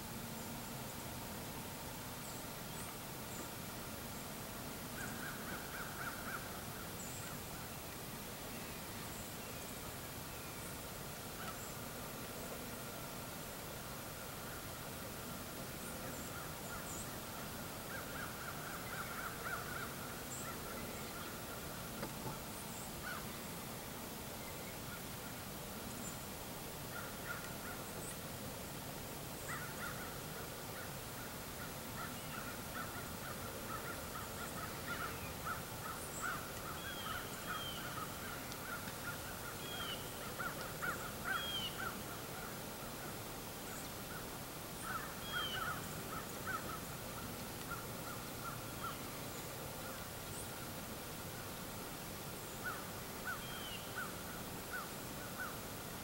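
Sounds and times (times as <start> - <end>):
steady outdoor hiss: 0.0 - 56.0
birds calling: 31.6 - 42.6, 43.7 - 50.5.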